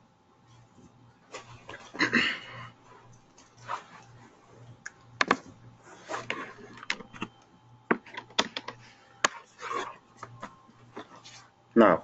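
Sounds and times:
laptop keys clicking: 0:04.8 - 0:05.4.

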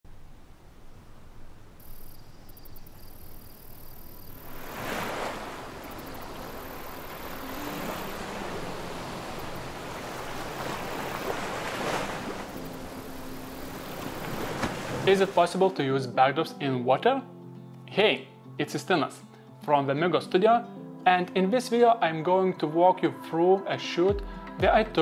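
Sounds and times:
lake waves lapping on sand: 0:03.9 - 0:15.7.

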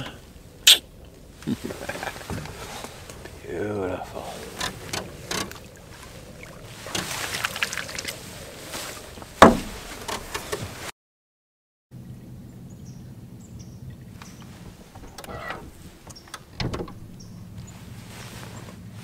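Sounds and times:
water splashing: 0:00.2 - 0:10.5
sharp knock on boat: 0:09.4 - 0:09.8.

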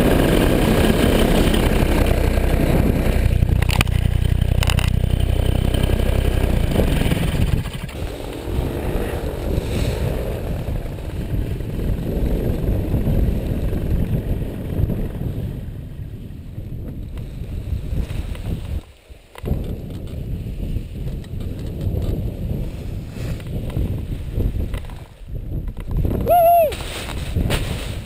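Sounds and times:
faint engine buzzing overhead: 0:00.0 - 0:16.8
paraglider engine and propeller: 0:00.0 - 0:28.0
wind rumbling on microphone: 0:00.0 - 0:28.0.

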